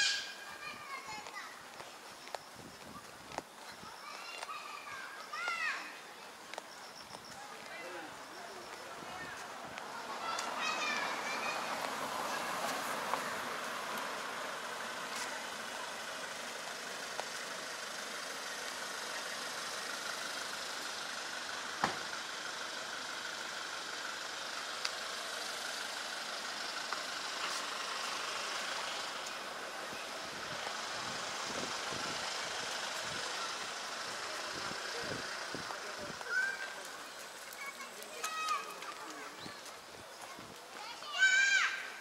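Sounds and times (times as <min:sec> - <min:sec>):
vehicle engine running: 0:00.5 - 0:41.1
faint ticks: 0:24.8 - 0:25.0.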